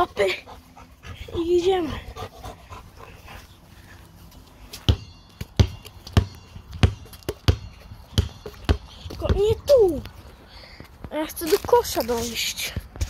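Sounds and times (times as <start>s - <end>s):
basketball bouncing on hard ground: 4.7s - 10.2s.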